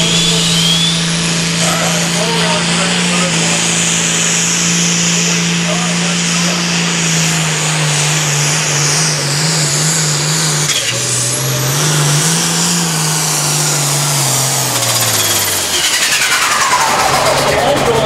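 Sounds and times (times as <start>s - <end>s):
faint high whine: 0.0s - 2.3s
diesel tractor engine at full throttle: 0.0s - 18.0s.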